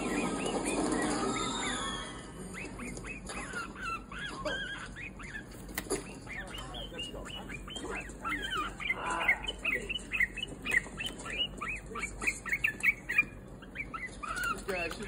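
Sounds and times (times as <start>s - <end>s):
bulbul chirping: 0.0s - 15.0s.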